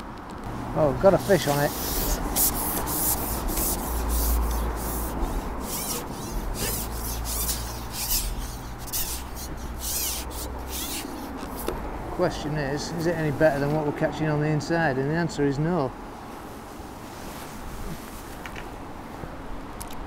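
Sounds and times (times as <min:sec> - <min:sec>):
fishing pole rubbing and scraping: 0:00.8 - 0:11.8.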